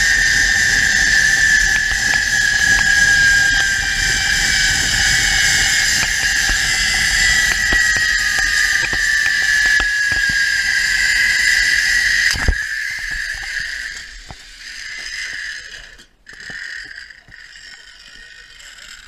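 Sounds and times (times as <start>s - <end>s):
wind rushing over microphone: 0.0s - 13.7s
zipline pulleys whining on cable: 0.0s - 19.0s.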